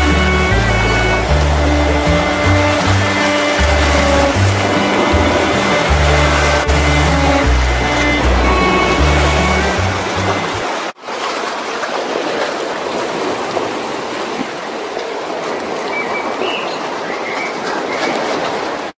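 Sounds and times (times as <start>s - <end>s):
music with heavy bass: 0.0s - 10.6s
sea water washing against rocks: 0.0s - 18.9s.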